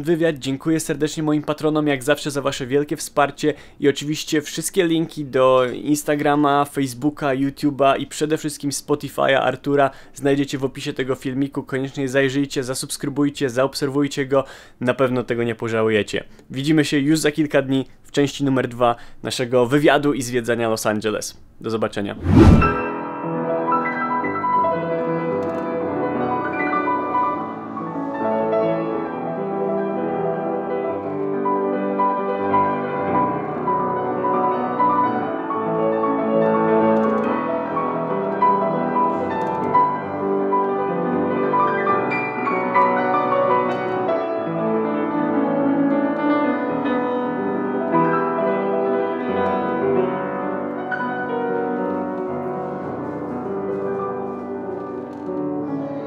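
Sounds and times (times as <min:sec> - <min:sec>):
calm classical piano piece: 0:22.8 - 0:56.0.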